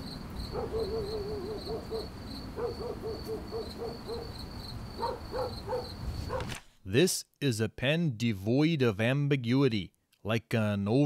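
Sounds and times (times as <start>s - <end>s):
crickets chirping: 0.0s - 6.4s
low animal call: 0.5s - 4.4s.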